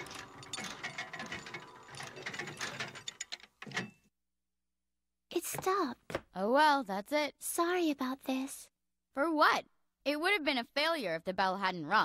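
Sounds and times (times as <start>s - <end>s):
clock mechanism clattering clicks: 0.0s - 4.0s.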